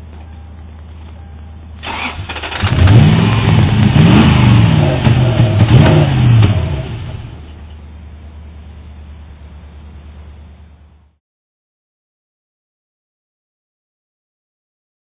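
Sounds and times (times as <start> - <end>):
starter cranking engine: 1.8 - 3.4.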